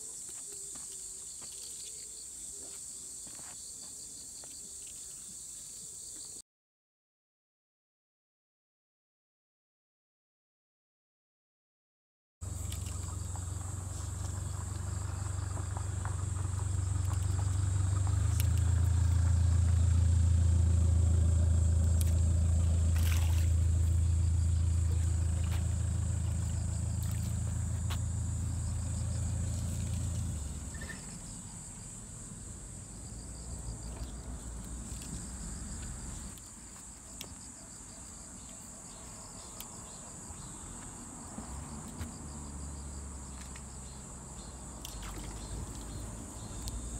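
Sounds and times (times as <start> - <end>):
insects trilling: 0.0 - 6.4, 12.4 - 46.9
low engine-like rumble: 12.4 - 38.6, 39.2 - 46.9.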